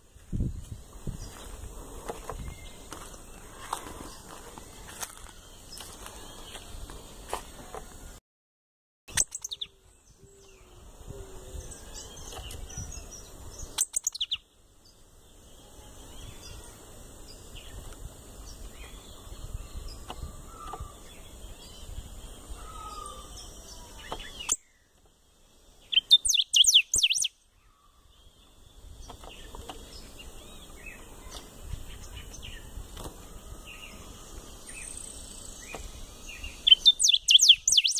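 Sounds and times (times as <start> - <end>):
caged bird singing high notes: 9.1 - 9.8, 13.8 - 14.4, 25.9 - 27.4, 36.3 - 37.9
faint bird chirps: 9.1 - 17.8, 18.4 - 25.0, 25.8 - 37.9.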